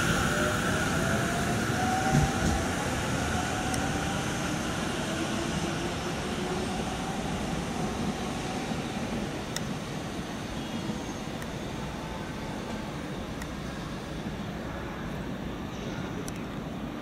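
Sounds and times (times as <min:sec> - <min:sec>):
train wheels rumbling on rails: 0:00.0 - 0:11.6.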